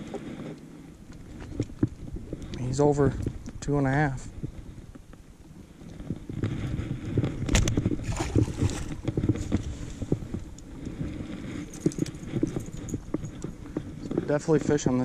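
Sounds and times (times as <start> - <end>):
low rumble: 6.2 - 14.1.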